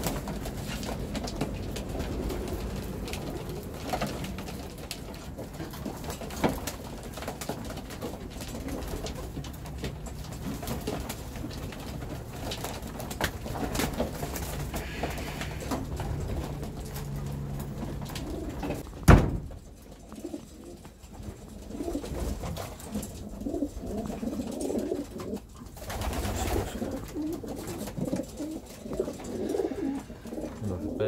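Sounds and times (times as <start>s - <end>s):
pigeons cooing: 0.0s - 18.8s, 20.0s - 31.0s.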